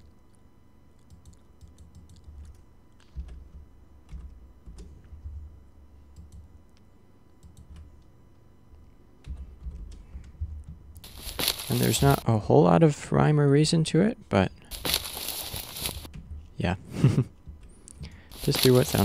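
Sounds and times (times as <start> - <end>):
keyboard and mouse clicks: 1.0 - 5.4.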